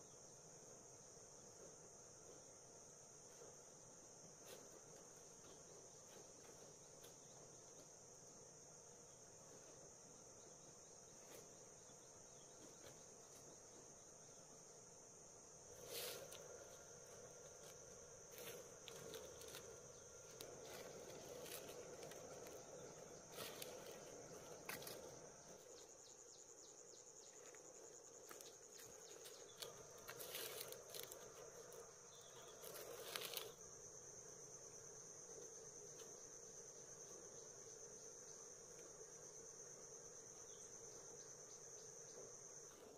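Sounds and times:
insects chirring: 0:00.0 - 0:42.9
rustling: 0:15.8 - 0:25.8, 0:28.3 - 0:33.6.

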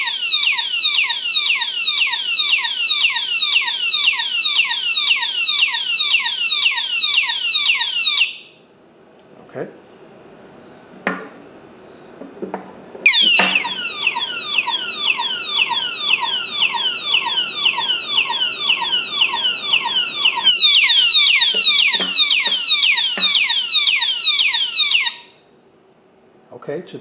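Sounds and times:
electronic siren sweeps: 0:00.0 - 0:08.5, 0:13.1 - 0:25.4.

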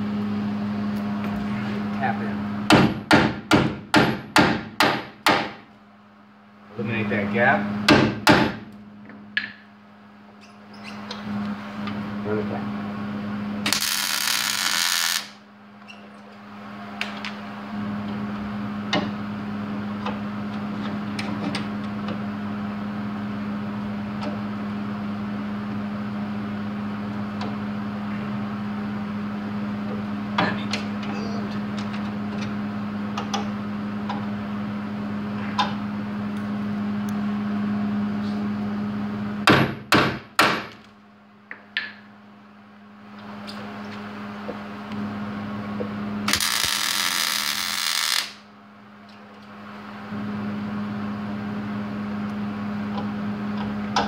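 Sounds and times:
steady hum: 0:00.0 - 0:54.0
sharp knocks: 0:02.7 - 0:05.6, 0:07.9 - 0:08.6, 0:39.4 - 0:40.8
welder crackling hiss: 0:13.7 - 0:15.4, 0:46.3 - 0:48.4.

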